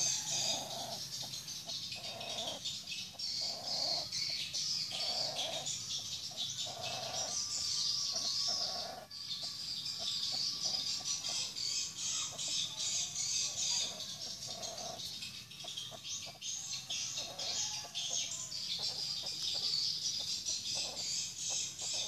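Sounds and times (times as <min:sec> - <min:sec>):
birds chirping and twittering: 0:00.0 - 0:22.0.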